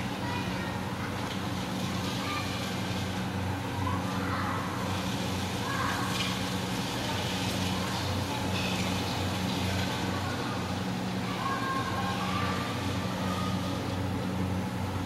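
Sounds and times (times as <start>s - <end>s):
children's voices and shouts: 0.0s - 6.4s, 9.7s - 14.1s
steady low hum: 0.0s - 15.0s.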